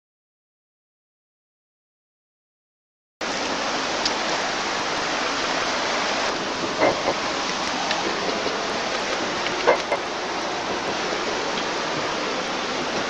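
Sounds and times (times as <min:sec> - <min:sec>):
steady rushing noise: 0:03.2 - 0:13.0.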